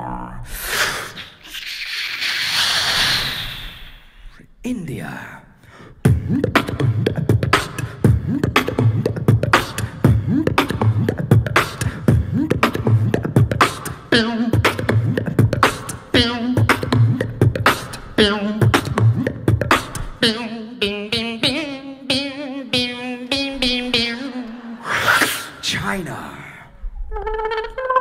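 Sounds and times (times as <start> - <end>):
beatboxing: 0.5 - 4.4, 5.9 - 26.0, 26.7 - 28.0
wavering sung vocal tone: 16.2 - 16.9, 18.2 - 18.8, 20.2 - 25.7, 26.6 - 28.0.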